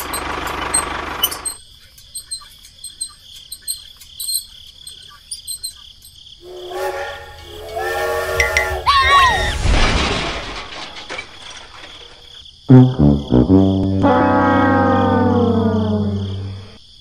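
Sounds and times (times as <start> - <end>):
toy train electronic horn: 6.4 - 8.9, 13.0 - 16.8.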